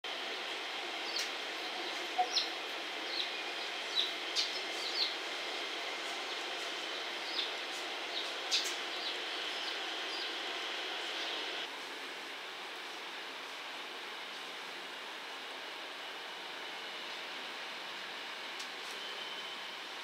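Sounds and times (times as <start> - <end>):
steady background hiss: 0.1 - 20.0
small birds chirping: 1.0 - 5.2, 6.1 - 11.6.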